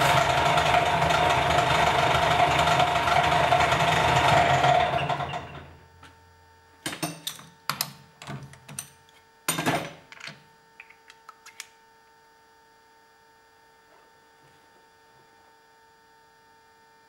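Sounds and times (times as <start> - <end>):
lathe winding down: 0.0 - 5.7.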